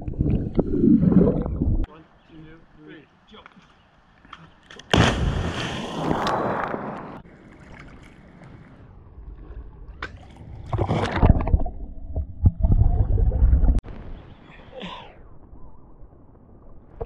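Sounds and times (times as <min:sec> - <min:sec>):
muffled underwater rushing and bubbling: 0:00.0 - 0:01.9, 0:06.0 - 0:13.9
person splashing into water: 0:04.9 - 0:06.7.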